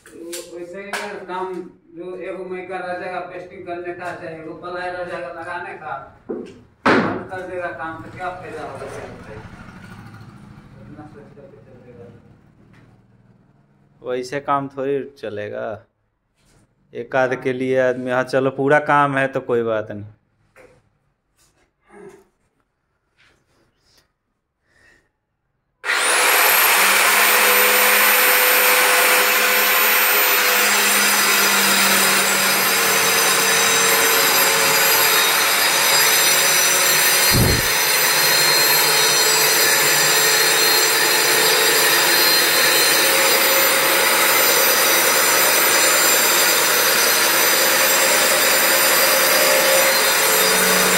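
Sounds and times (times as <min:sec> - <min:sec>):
electric power tool whine: 0:25.8 - 0:50.9.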